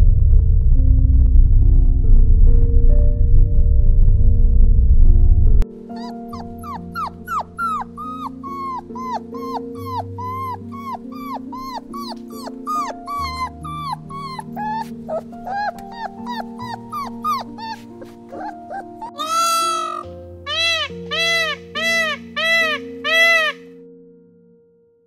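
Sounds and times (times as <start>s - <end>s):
soft background music: 0.0s - 25.0s
dog whimpering: 5.9s - 23.6s.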